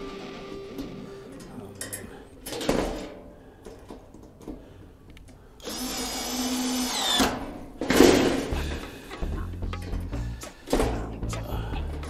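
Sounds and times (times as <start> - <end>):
power drill driving fastener: 5.6 - 8.5.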